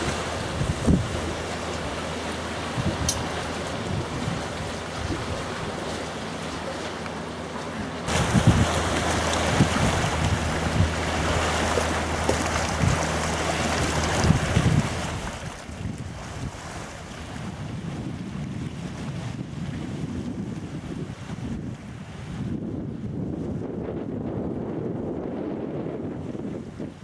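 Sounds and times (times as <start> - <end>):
waves washing onto pebbles: 0.0 - 17.4
wind gusting against microphone: 0.0 - 27.0.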